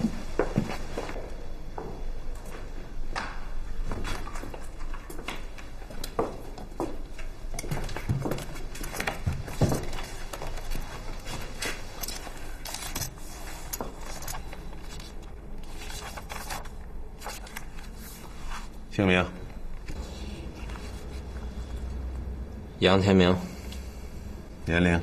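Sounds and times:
footsteps: 0.0 - 12.4
people handling things: 0.0 - 22.4.

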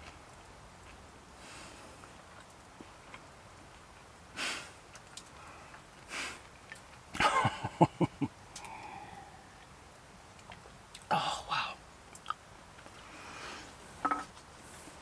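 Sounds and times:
sharp sniffs: 4.4 - 4.7.

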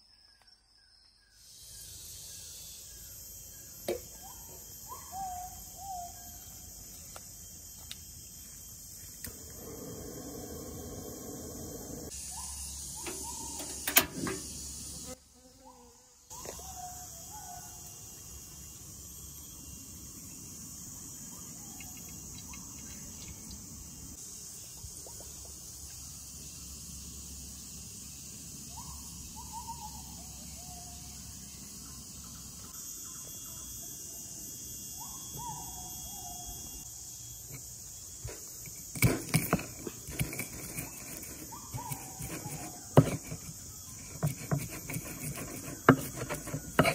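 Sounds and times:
insects chirring: 0.0 - 46.9
stone pestle grinding in mortar: 37.5 - 46.9.

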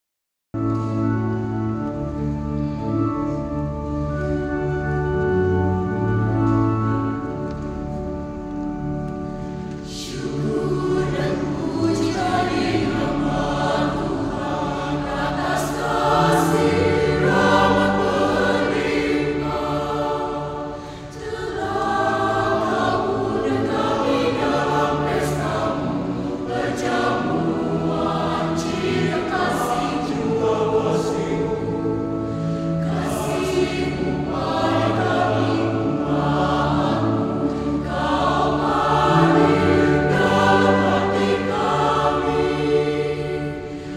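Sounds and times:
choir singing in parts: 9.3 - 43.9.

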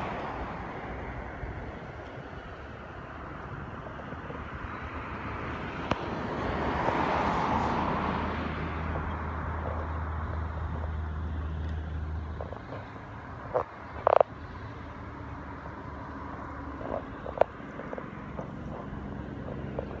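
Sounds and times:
diesel locomotive engine drone: 0.0 - 20.0.

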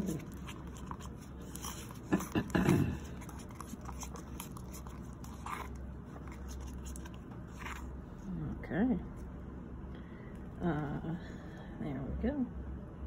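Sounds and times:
palette knife scraping paint in cup: 0.0 - 7.9
steady low hum: 0.0 - 13.0.

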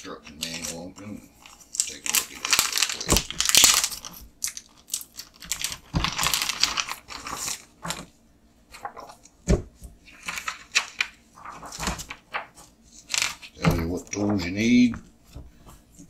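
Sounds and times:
plastic bag crinkling: 0.3 - 8.1, 10.1 - 14.9.

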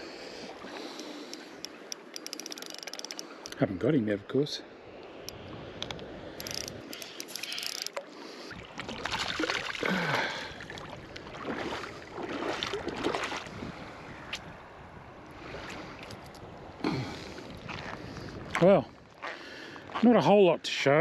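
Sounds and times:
fish splashing in shallow water: 5.1 - 14.6.

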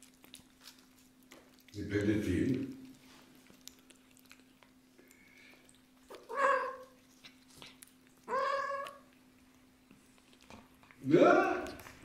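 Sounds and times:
kitten meowing: 6.1 - 7.0, 8.3 - 9.0.

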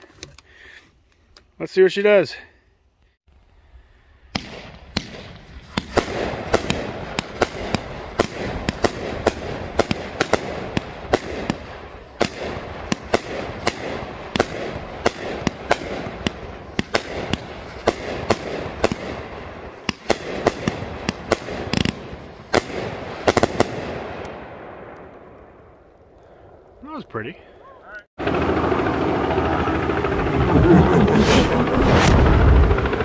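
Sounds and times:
fireworks shots and bursts: 4.2 - 26.6, 31.0 - 33.0.

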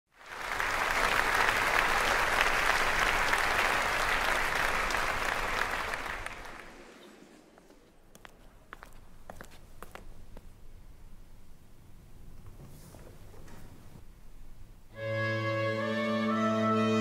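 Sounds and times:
audience applauding: 0.1 - 7.3.

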